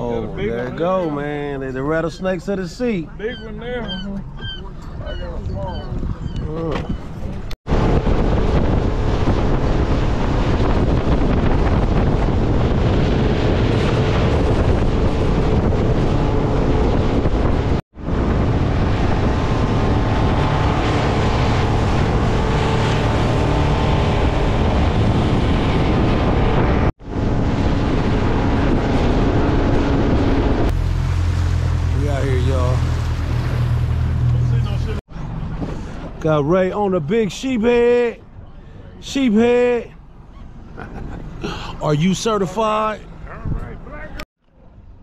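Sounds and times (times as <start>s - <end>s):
outboard engine drone: 0.0s - 37.0s
wind buffeting microphone: 3.0s - 36.2s
water rushing past hull: 7.7s - 36.3s.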